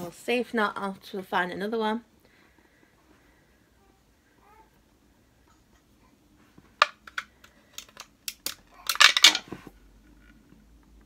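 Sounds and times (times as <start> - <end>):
battery clattering: 6.8 - 9.5.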